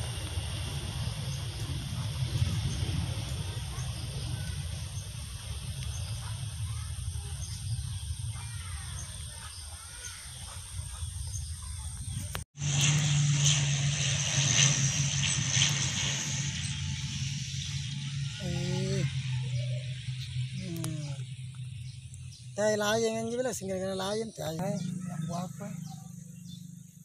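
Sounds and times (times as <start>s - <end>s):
low steady rumble: 0.0s - 27.0s
turboprop airliner engine drone: 0.0s - 27.0s
faint bird chirps: 3.7s - 12.4s, 18.0s - 27.0s.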